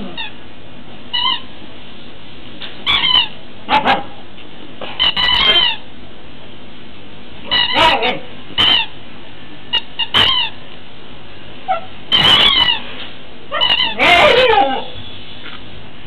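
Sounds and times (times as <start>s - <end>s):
squeaky toy squealing: 1.1s - 1.4s, 2.8s - 3.3s, 5.0s - 5.8s, 7.5s - 8.9s, 9.7s - 10.6s, 11.7s - 12.8s, 13.5s - 14.9s.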